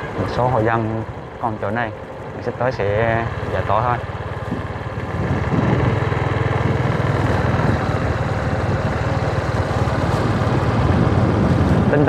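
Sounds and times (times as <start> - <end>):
road noise: 0.0 - 12.0
vehicle engine running: 0.0 - 12.0
wind noise: 4.4 - 12.0.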